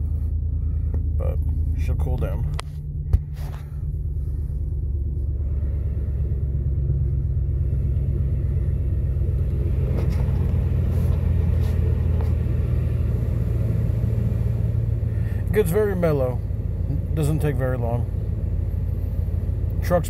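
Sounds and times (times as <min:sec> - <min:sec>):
truck engine idling: 0:00.0 - 0:20.0
short thump: 0:02.6 - 0:03.7.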